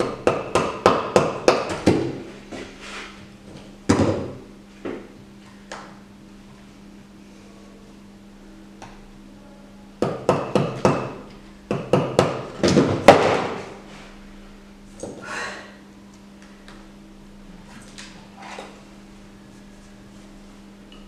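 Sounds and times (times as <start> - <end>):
chisel knocking on plaster: 0.0 - 2.1, 10.0 - 13.5.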